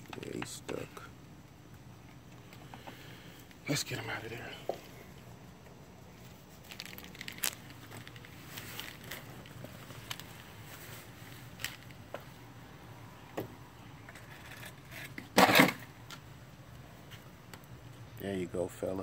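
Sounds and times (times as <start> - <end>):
footsteps and handling clicks: 5.6 - 12.3
plastic bucket knocked over: 15.2 - 15.8.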